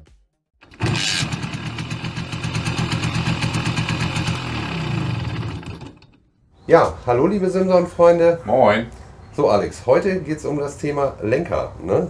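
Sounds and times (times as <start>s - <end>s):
moped engine running: 0.6s - 6.2s.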